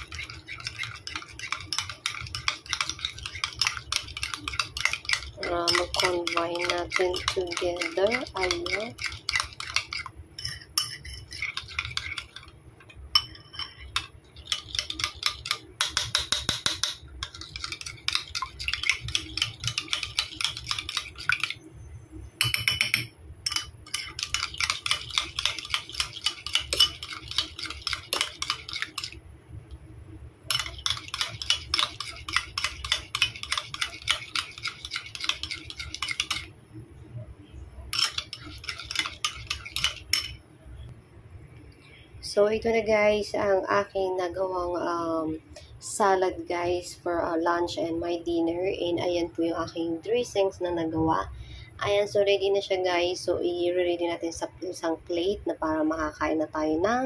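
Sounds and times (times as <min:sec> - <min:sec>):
utensil clinking against bowl: 0:00.0 - 0:12.5, 0:13.1 - 0:21.6, 0:22.4 - 0:29.2, 0:30.5 - 0:36.5, 0:37.9 - 0:40.4.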